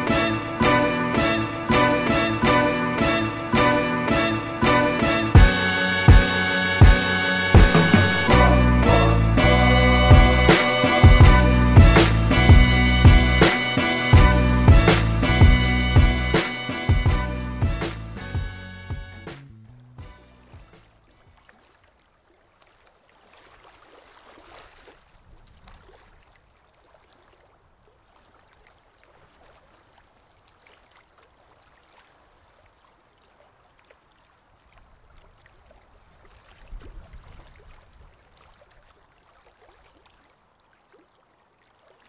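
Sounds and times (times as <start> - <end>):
pool water lapping: 0.0 - 17.2, 19.5 - 42.0
low rumble: 7.6 - 13.4
small splashes: 20.6 - 42.0.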